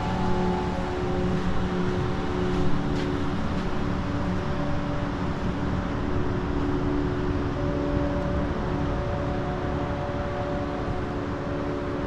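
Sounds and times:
drone propellers humming: 0.0s - 4.8s.

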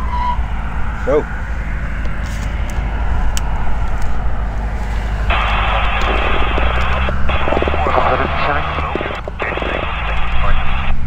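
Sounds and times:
aircraft piston engine drone: 0.0s - 11.0s
crackly airband radio audio: 4.9s - 11.0s.

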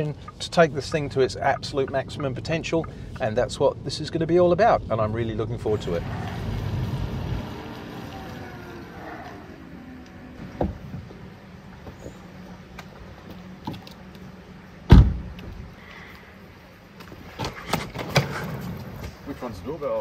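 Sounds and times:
car door slamming shut: 14.9s - 15.4s.

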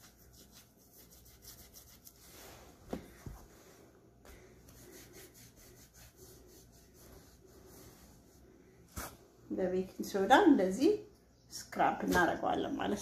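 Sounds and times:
lemon rubbing against skin: 0.0s - 2.7s, 4.7s - 8.4s.

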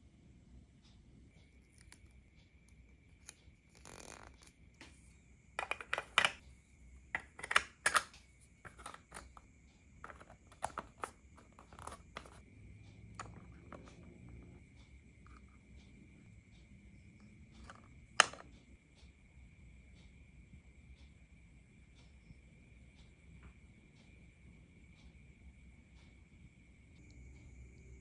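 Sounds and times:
faint high-pitched whine: 0.0s - 28.0s
plastic toy pieces clicking: 5.6s - 6.4s, 7.2s - 9.4s, 10.0s - 12.4s, 17.7s - 18.4s.

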